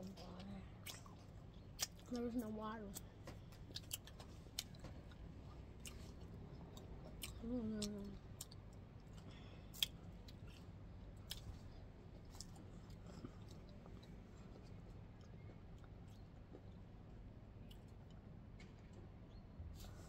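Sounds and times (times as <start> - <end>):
chewing crunches: 0.0 - 2.3, 2.9 - 17.0
person humming: 7.4 - 8.2.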